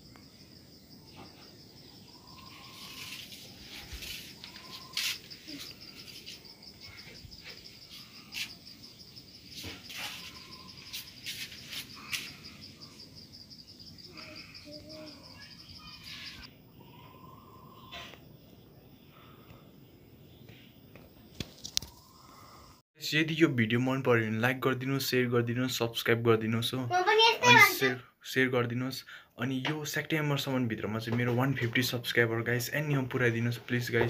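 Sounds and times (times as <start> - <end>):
insect trilling: 0.0 - 19.4, 21.3 - 22.8.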